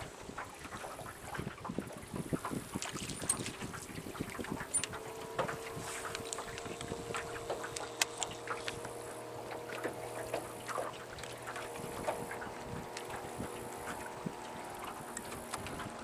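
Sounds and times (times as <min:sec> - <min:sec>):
water slapping against hull: 0:00.0 - 0:16.0
lower hum: 0:02.3 - 0:16.0
electric motor humming: 0:04.6 - 0:16.0.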